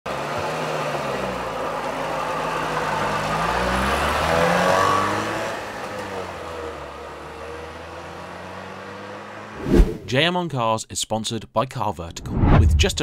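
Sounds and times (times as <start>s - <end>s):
two-stroke car engine revving: 0.1s - 9.5s.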